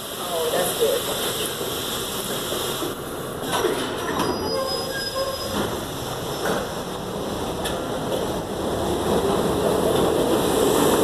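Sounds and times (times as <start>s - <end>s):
subway train rumbling on track: 0.0s - 11.0s
high wheel squeal: 4.1s - 5.7s.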